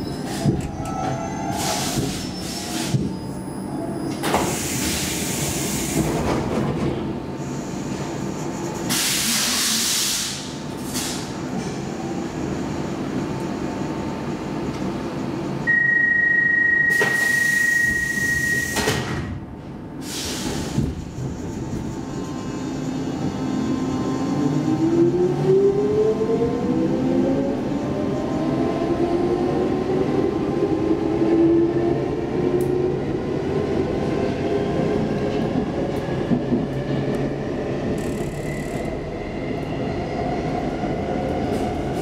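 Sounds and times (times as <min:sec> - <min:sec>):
train air hiss: 0:01.5 - 0:03.1, 0:04.4 - 0:06.2, 0:08.9 - 0:11.4, 0:20.0 - 0:21.2
steady high beep: 0:15.7 - 0:18.7
traction motor whine: 0:37.9 - 0:39.0.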